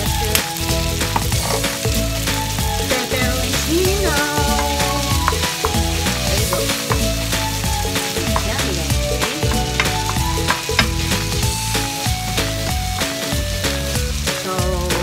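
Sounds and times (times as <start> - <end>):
background music: 0.0 - 15.0
spaghetti sizzling in frying pan: 0.0 - 15.0
wooden spatula scraping pan: 4.5 - 11.5.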